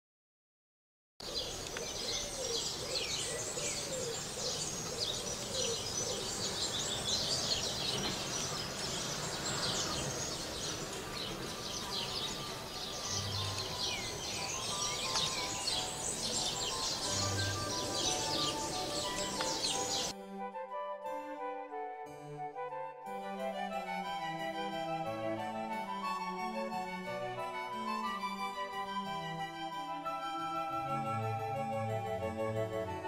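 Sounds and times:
small birds chirping: 0:01.2 - 0:20.1
music: 0:04.9 - 0:33.0.

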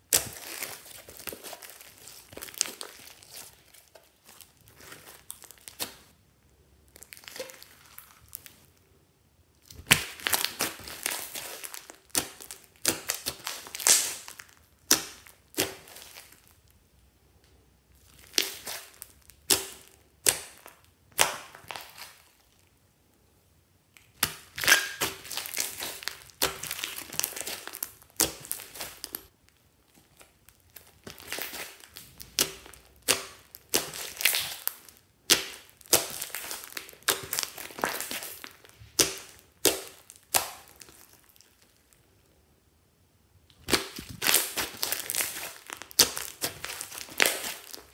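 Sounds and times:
hands pressing slime: 0:09.6 - 0:16.4, 0:30.8 - 0:41.2, 0:43.5 - 0:47.9
slime air popping and crackling: 0:09.7 - 0:16.5, 0:24.0 - 0:29.3, 0:30.7 - 0:41.7, 0:43.5 - 0:47.9.

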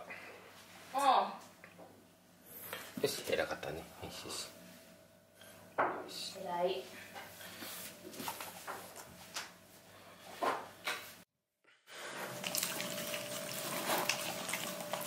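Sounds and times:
dogs licking and chewing: 0:12.3 - 0:15.0.

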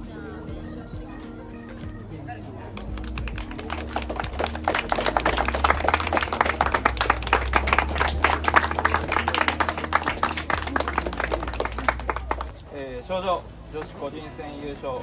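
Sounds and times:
people applauding: 0:02.7 - 0:12.7.

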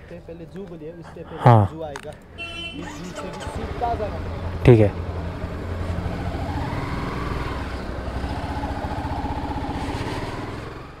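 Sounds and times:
motorcycle engine at low revs: 0:05.1 - 0:11.0.

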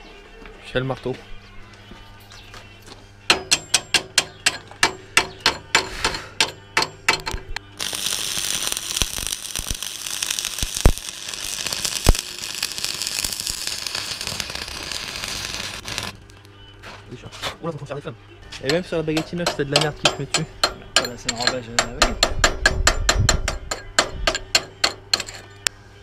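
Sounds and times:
welding pops: 0:03.3 - 0:16.5
arc welder crackling: 0:03.3 - 0:17.2, 0:18.6 - 0:25.4.

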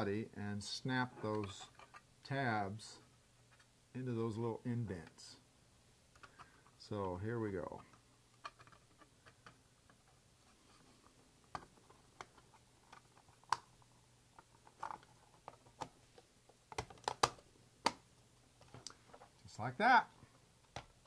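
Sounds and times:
plastic parts clicking: 0:16.7 - 0:18.0.

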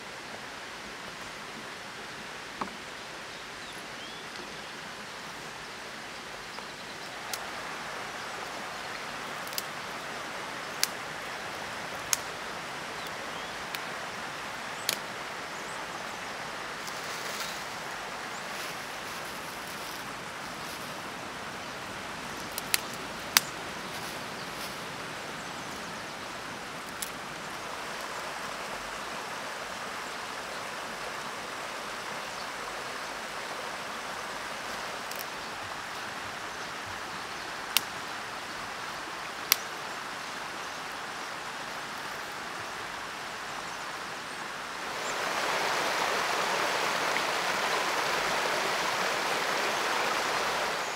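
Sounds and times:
twigs snapping: 0:09.4 - 0:09.8, 0:22.4 - 0:24.7
dry leaves rustling: 0:16.8 - 0:21.1, 0:22.5 - 0:25.0.

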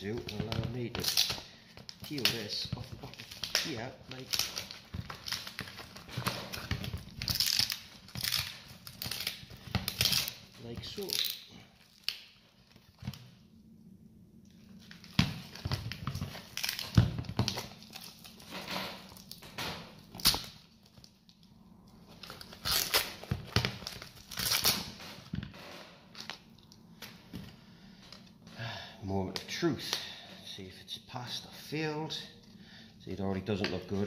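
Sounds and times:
peel ply tearing and crinkling: 0:00.0 - 0:13.4, 0:14.5 - 0:27.2.

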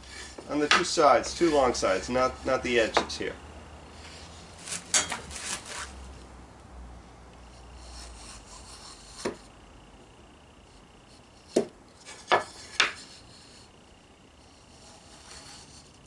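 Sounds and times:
gauge scraping along wood: 0:00.0 - 0:02.6, 0:07.4 - 0:09.5, 0:10.7 - 0:13.8, 0:14.4 - 0:16.0.

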